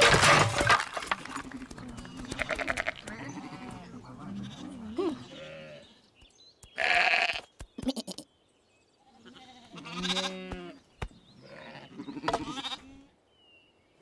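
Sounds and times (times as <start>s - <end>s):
cartoon sheep bleating: 6.8s - 8.3s, 9.2s - 10.8s.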